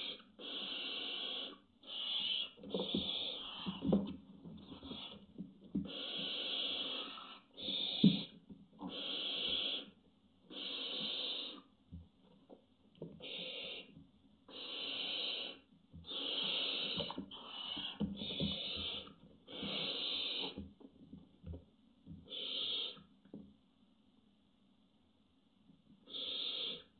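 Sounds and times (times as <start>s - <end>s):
owl hissing: 0.0s - 4.0s, 4.6s - 11.7s, 13.2s - 20.6s, 22.3s - 23.1s, 26.0s - 26.9s.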